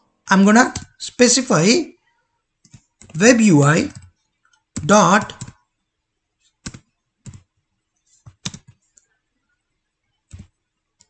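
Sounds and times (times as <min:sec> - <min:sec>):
computer keyboard keystrokes: 0:00.6 - 0:01.0, 0:04.8 - 0:05.6, 0:06.6 - 0:07.4, 0:08.3 - 0:08.8.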